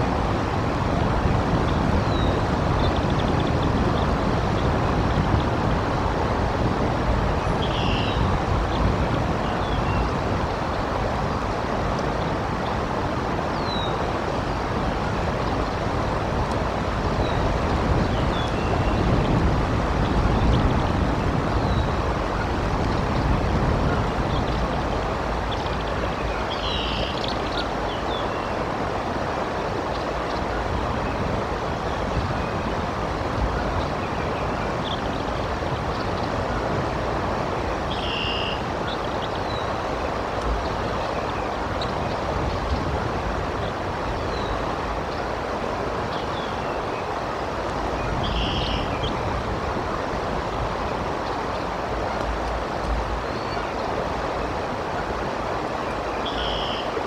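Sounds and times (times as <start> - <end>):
wind buffeting microphone: 0.0 - 38.0, 38.6 - 56.1
rain hiss: 0.0 - 57.0
high bird calls: 7.5 - 8.2, 26.5 - 28.5, 37.9 - 39.7, 48.1 - 49.2, 56.2 - 57.0.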